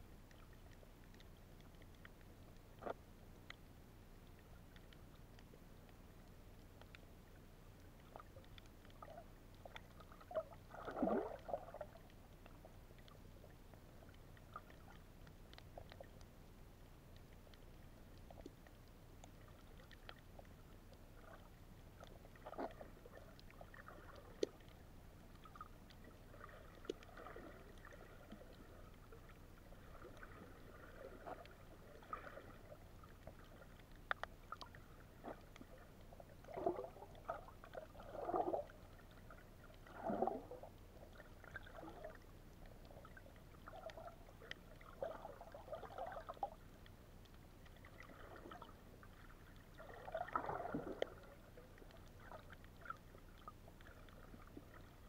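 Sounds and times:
water gurgling and sloshing: 0.0 - 55.0
small clicks: 0.2 - 7.1, 31.2 - 37.8.

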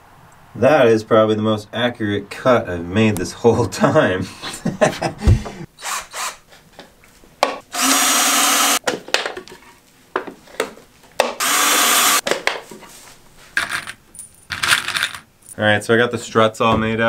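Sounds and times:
cordless drill boring wood: 5.8 - 6.4, 7.7 - 8.8, 11.4 - 12.2.

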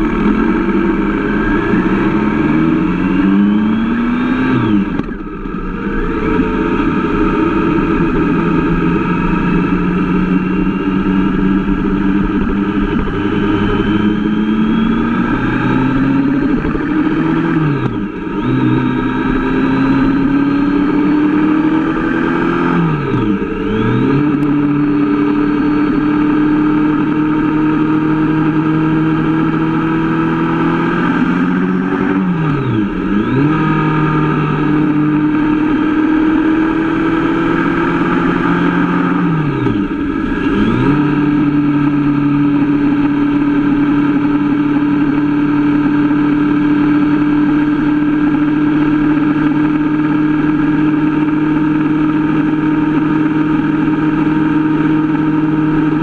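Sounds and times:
motorcycle engine cruising: 0.0 - 56.0.

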